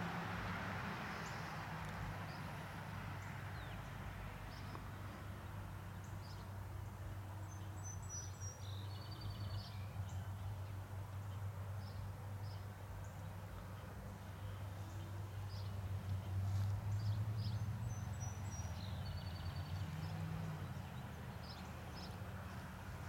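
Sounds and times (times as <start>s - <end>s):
birdsong with fast trill: 7.4s - 15.8s.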